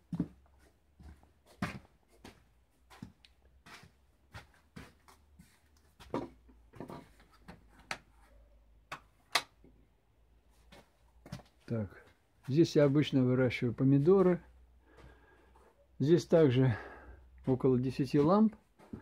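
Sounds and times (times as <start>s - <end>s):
footsteps walking: 0.0s - 8.4s, 10.6s - 15.8s, 17.4s - 19.0s.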